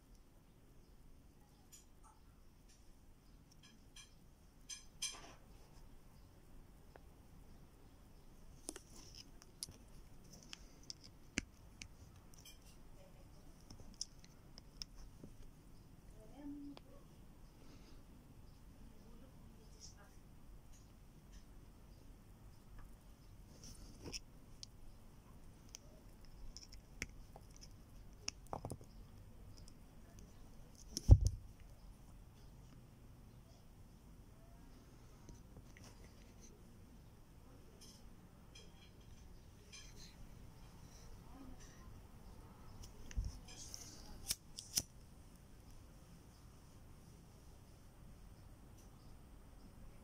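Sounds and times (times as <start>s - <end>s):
pliers clicking and scraping wire: 8.7s - 12.8s, 42.8s - 44.9s.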